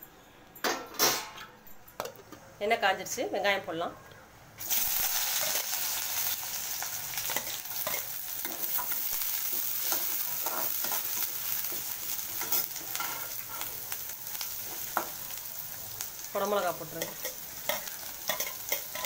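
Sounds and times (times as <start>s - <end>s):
onions sizzling in hot oil: 4.6s - 19.0s.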